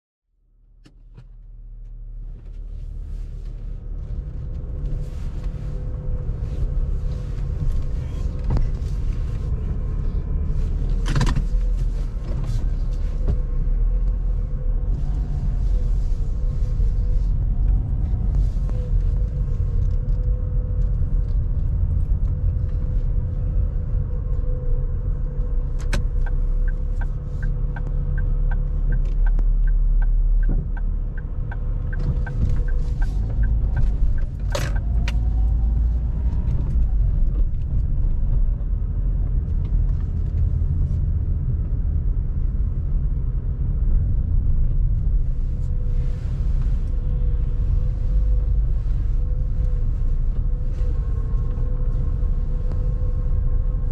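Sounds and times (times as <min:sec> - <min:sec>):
road and engine rumble: 0:00.3 - 0:53.9
turn indicator ticking: 0:25.3 - 0:36.0.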